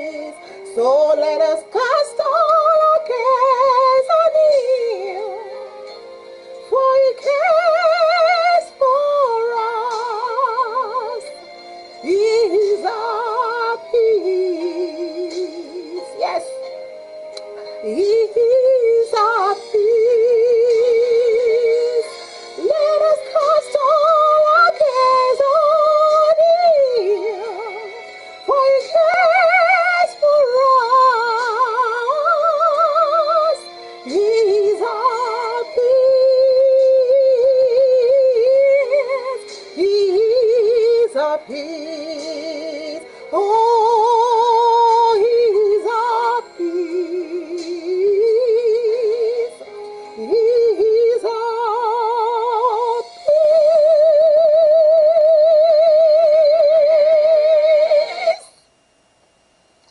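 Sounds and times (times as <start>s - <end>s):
woman singing gospel song: 0.0s - 5.8s, 6.6s - 16.8s, 17.7s - 58.5s.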